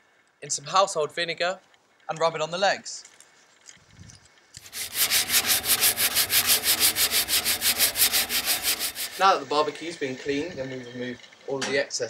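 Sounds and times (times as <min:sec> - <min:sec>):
foil scrubbing rusty metal: 0:04.6 - 0:09.4.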